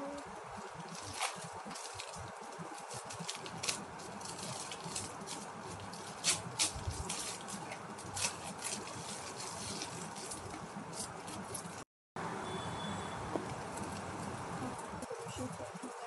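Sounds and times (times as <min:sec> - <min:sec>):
plastic packaging crinkling: 0:00.7 - 0:11.8.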